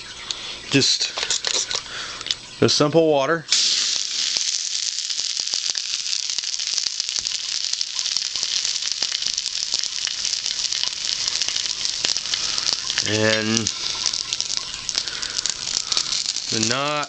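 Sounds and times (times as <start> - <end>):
fire starter sizzling and crackling: 0.0 - 2.8, 3.5 - 17.0.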